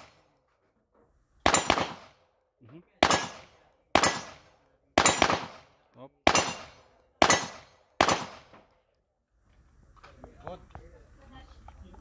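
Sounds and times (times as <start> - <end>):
handgun shots: 1.5 - 2.1, 3.0 - 4.4, 5.0 - 5.6, 6.3 - 8.6.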